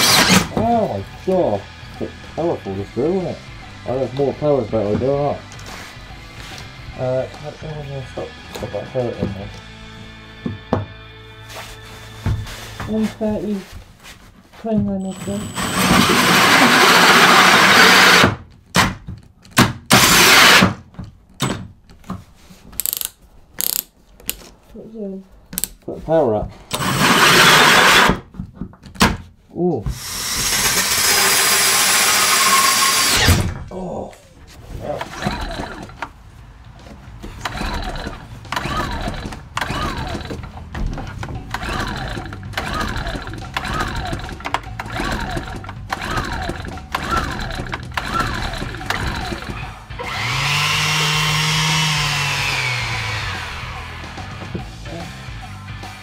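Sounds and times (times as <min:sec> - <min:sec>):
drill hole saw cutting plywood: 0:00.0 - 0:00.6, 0:15.0 - 0:18.4, 0:19.9 - 0:20.8, 0:26.7 - 0:28.2, 0:29.9 - 0:33.5, 0:37.4 - 0:40.4, 0:41.5 - 0:54.4
generator recoil starter whirr: 0:00.0 - 0:00.6, 0:15.1 - 0:18.4, 0:19.9 - 0:20.8, 0:26.7 - 0:28.2, 0:29.9 - 0:33.6, 0:37.4 - 0:40.7, 0:41.3 - 0:54.4.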